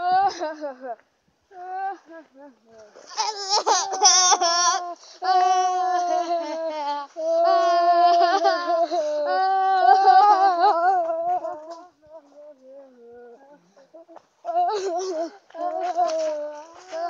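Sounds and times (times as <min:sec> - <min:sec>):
child singing long notes: 0:03.7 - 0:17.0.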